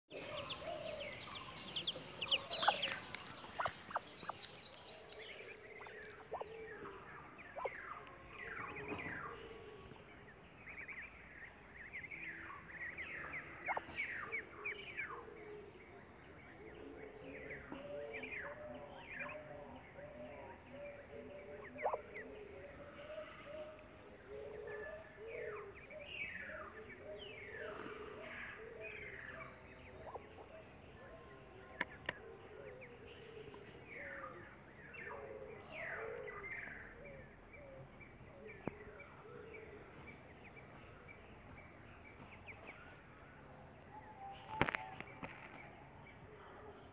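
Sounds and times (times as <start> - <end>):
ducklings peeping: 0.1 - 9.3, 10.7 - 14.4, 21.6 - 22.2.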